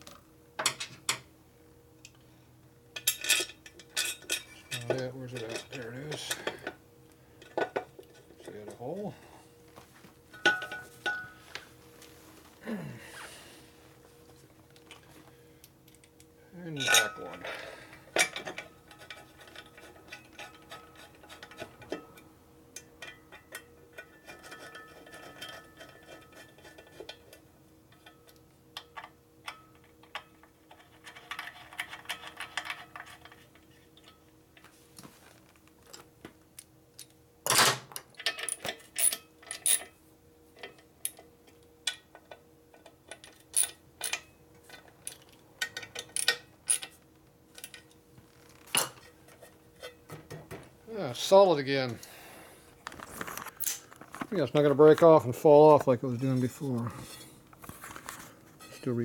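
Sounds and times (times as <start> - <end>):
faint steady hum: 0.0 - 59.0
metal tools clicking and clinking: 3.0 - 6.8, 16.8 - 17.5, 37.0 - 40.0, 41.9 - 48.0.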